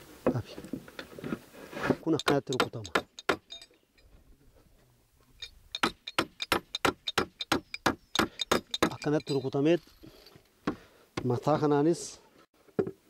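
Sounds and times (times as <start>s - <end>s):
hammer driving nails into wood: 2.2s - 3.5s, 5.8s - 9.0s.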